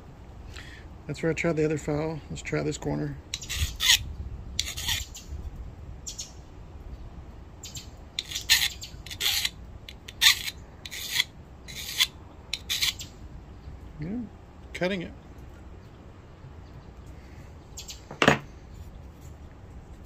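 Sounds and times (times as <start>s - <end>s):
file rasping on metal: 3.4s - 4.0s, 4.6s - 5.0s, 8.2s - 13.0s.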